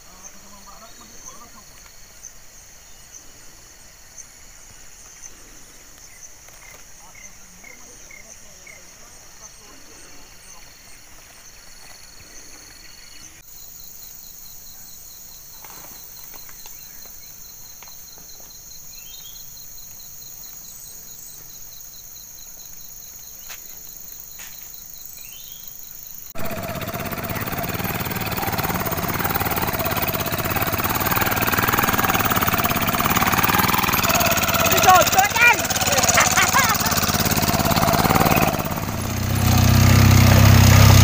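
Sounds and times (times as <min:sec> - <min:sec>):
insect chorus trilling: 0:00.0 - 0:41.0
bird chirps: 0:18.0 - 0:19.6, 0:25.1 - 0:25.8.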